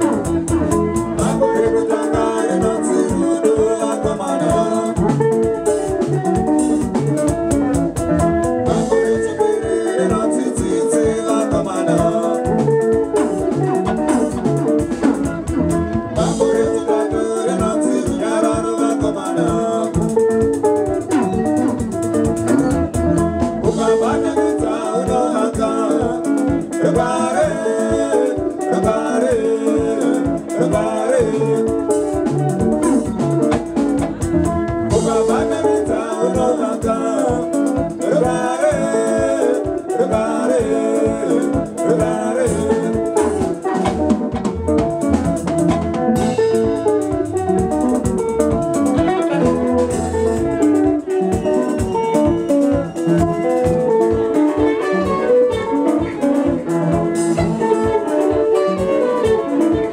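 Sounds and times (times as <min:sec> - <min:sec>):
drum kit beat: 0:00.0 - 0:59.9
electric guitars picking: 0:00.0 - 0:59.9
singing: 0:01.2 - 0:05.2, 0:08.8 - 0:13.1, 0:16.2 - 0:20.6, 0:23.6 - 0:32.2, 0:34.9 - 0:43.6.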